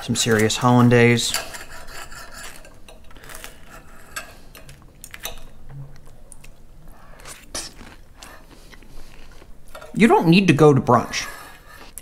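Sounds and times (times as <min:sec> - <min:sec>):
cutlery scraping a ceramic plate: 0:00.1 - 0:05.4.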